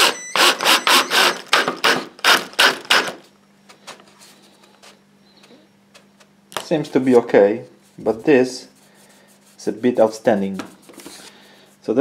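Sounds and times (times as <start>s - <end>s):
cordless drill driving screw: 0.0s - 3.2s.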